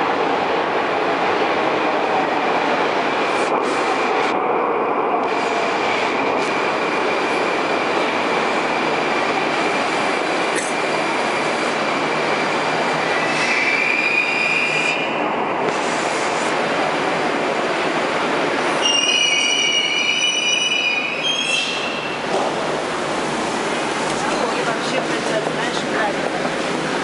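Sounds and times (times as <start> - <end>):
train wheels rushing on rail: 0.0 - 27.0
high-pitched brake squeals: 18.8 - 22.2.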